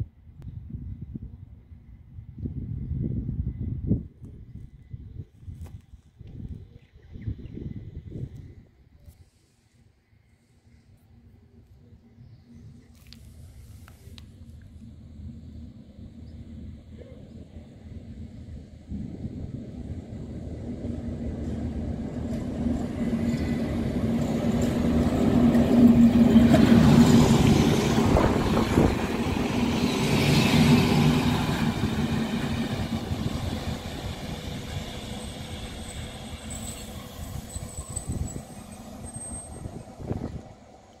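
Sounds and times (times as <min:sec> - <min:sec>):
railcar engine drone: 0:00.0 - 0:05.2, 0:05.8 - 0:41.0
wheels rumbling on rail: 0:11.1 - 0:41.0
faint high squeal: 0:35.0 - 0:40.4.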